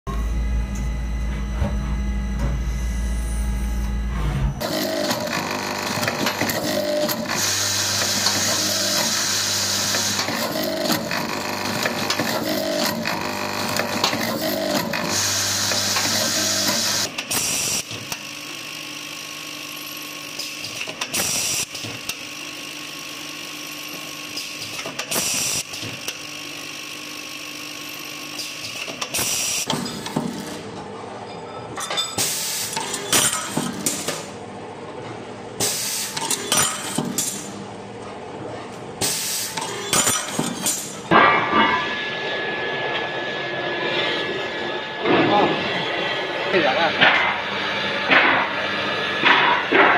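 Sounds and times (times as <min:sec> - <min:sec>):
machine whir: 0:00.1 - 0:31.0, 0:38.4 - 0:49.9
machine spindles cutting metal: 0:04.6 - 0:21.7.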